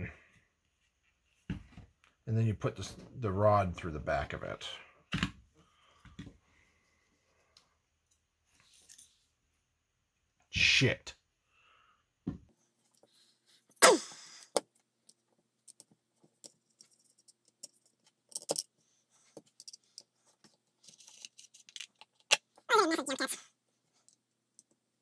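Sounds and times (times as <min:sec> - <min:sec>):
small metal parts clicking and rattling: 0:15.0 - 0:20.2.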